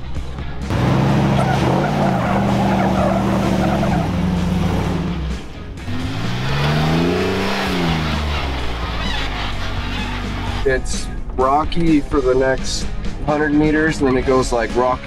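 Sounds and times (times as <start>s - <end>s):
engine drone: 0.6s - 11.2s
engine revving: 0.6s - 11.2s.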